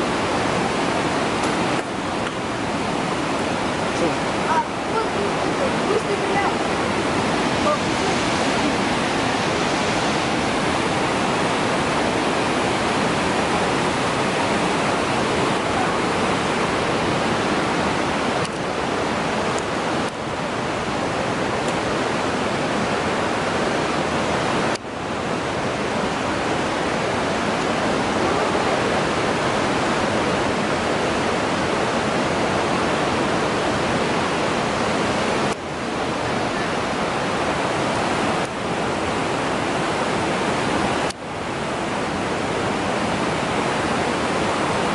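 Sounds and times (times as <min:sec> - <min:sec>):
river water roaring through gorge: 0:00.0 - 0:44.9.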